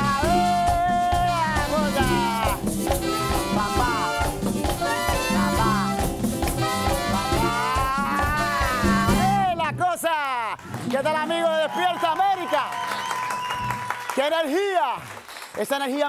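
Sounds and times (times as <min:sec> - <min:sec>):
trumpets: 0:00.0 - 0:09.5
congas and bongos: 0:00.0 - 0:09.6
latin band playing dance music: 0:00.0 - 0:12.6.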